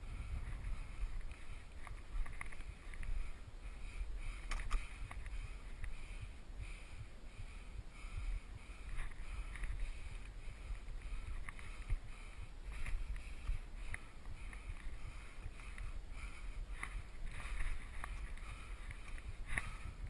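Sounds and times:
wind rumble on microphone: 0.0 - 20.0
camera handling noise: 4.4 - 5.3.

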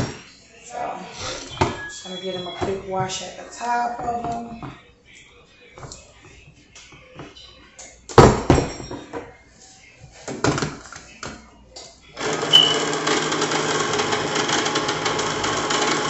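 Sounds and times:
electric can opener motor: 12.2 - 16.0.

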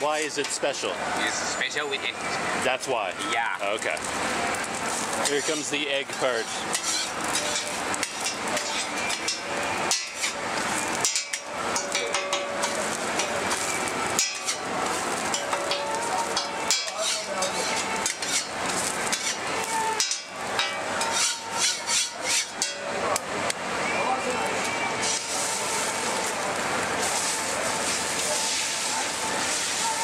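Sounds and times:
food sizzling on a griddle: 0.0 - 30.0
metal spatula scraping a hot plate: 4.8 - 23.0, 25.0 - 26.3, 27.0 - 30.0.

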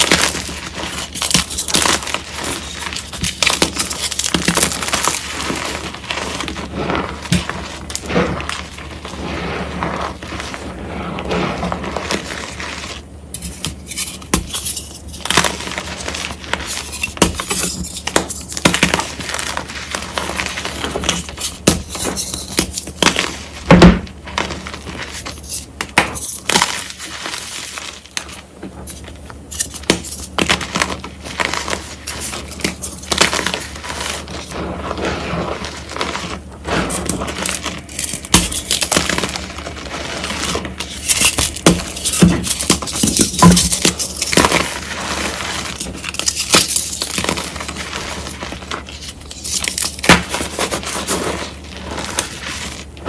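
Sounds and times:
chalk crumbling: 0.0 - 53.0
chalk crunching and snapping: 0.0 - 53.0.

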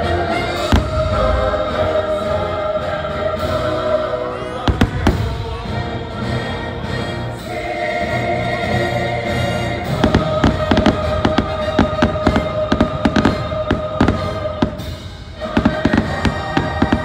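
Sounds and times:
fireworks bangs and crackles: 0.5 - 2.4, 4.6 - 5.9, 9.8 - 17.0.

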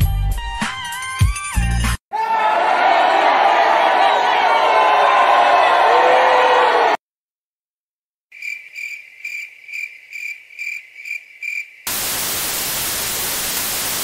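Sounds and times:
crickets chirping: 8.3 - 13.0
tv static hiss: 11.9 - 14.0.

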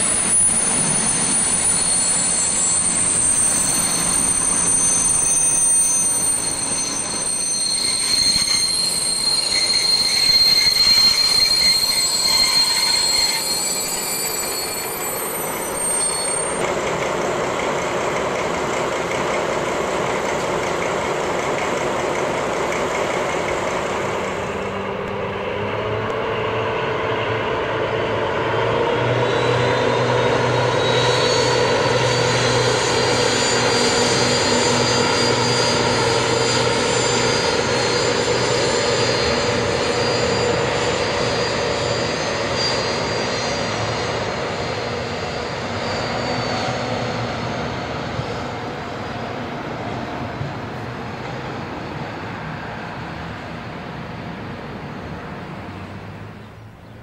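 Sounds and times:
diesel locomotive engine drone: 0.0 - 57.0
high whine: 22.5 - 51.2.

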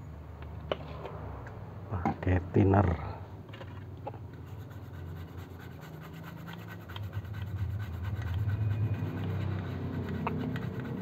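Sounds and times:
toothbrush scrubbing circuit board: 4.4 - 11.0.

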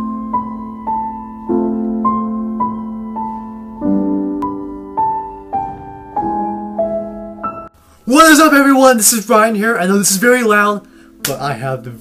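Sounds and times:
slow piano melody: 0.0 - 8.5.

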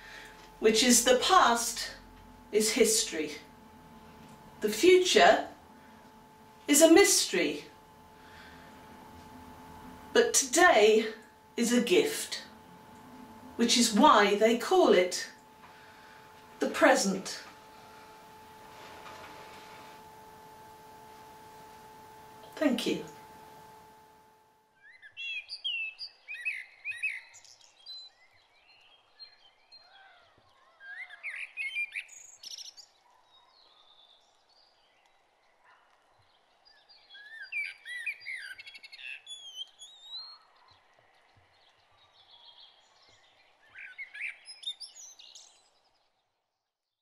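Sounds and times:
faint steady hiss: 0.0 - 24.6
songbirds chirping: 24.8 - 46.4.

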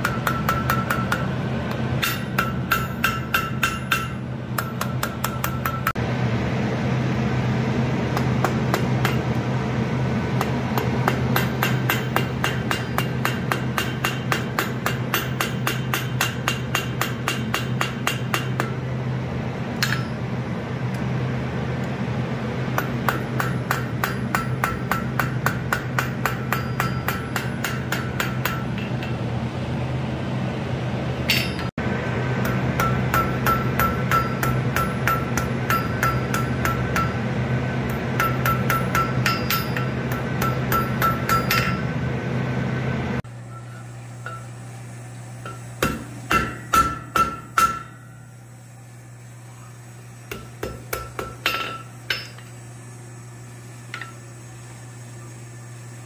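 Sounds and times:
anvil ringing: 0.0 - 1.4, 2.0 - 6.0, 8.2 - 9.4, 10.4 - 18.8, 19.8 - 20.4, 22.8 - 29.3, 31.3 - 31.7, 32.4 - 37.3, 37.9 - 42.0, 43.4 - 44.6, 45.4 - 48.4, 50.3 - 52.5
hammer striking hot steel: 0.0 - 6.0, 8.1 - 9.7, 10.3 - 18.9, 19.8 - 20.4, 22.7 - 29.3, 31.2 - 42.0, 43.2 - 44.6, 45.3 - 48.4, 50.3 - 52.6, 53.8 - 54.3
steady low hum: 0.0 - 56.0.

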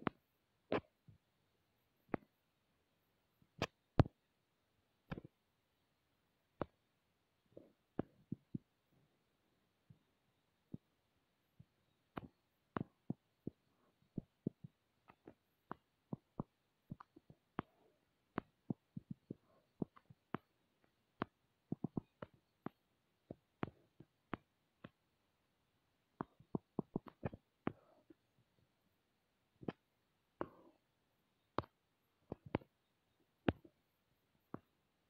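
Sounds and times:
fingertip tapping touchscreen: 3.5 - 4.3, 5.1 - 5.4, 7.6 - 8.8, 11.6 - 25.2, 26.0 - 28.2, 29.6 - 33.8.

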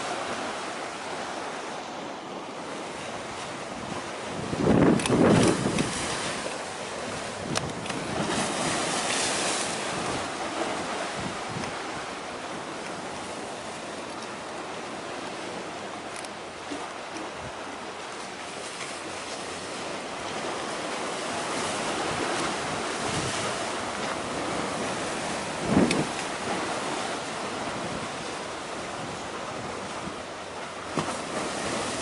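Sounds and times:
waves washing: 0.0 - 32.0
wind on microphone: 2.7 - 13.4, 20.3 - 30.3.

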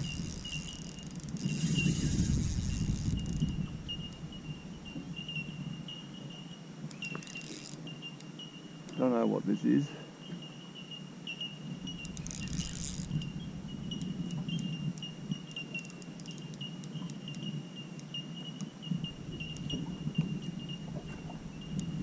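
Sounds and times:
rapid reel clicking: 0.0 - 3.5, 12.0 - 13.3
fishing reel cranking: 0.0 - 4.3, 7.1 - 7.8, 11.9 - 14.2.

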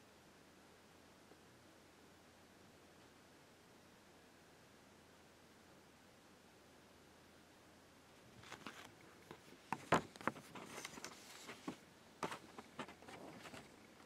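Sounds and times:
paper rustling: 8.4 - 13.9.

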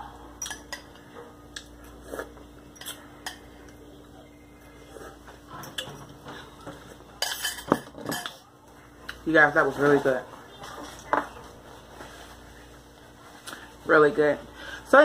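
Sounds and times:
faint steady hum: 0.0 - 15.0
metal utensil clinking on glass bowl: 0.4 - 1.0, 7.2 - 8.4.

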